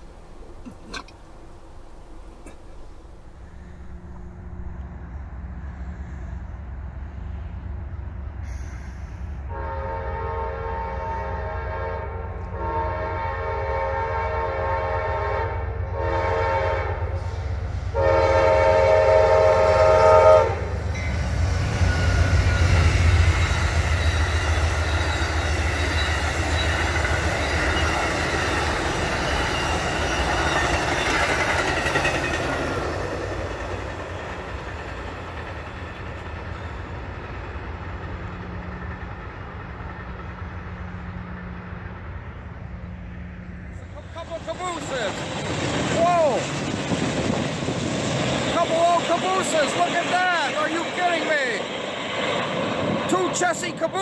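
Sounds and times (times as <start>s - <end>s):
train wheels on rails: 0.0s - 54.0s
train horn blasts: 9.4s - 28.8s.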